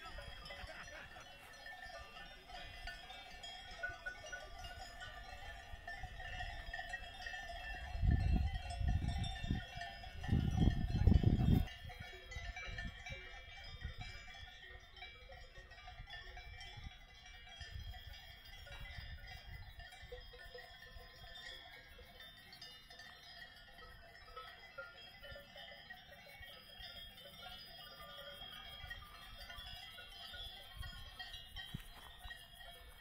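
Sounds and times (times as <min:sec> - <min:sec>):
livestock bells ringing: 0:00.0 - 0:33.0
wind rumbling on microphone: 0:01.8 - 0:14.7, 0:15.6 - 0:21.6, 0:28.6 - 0:33.0.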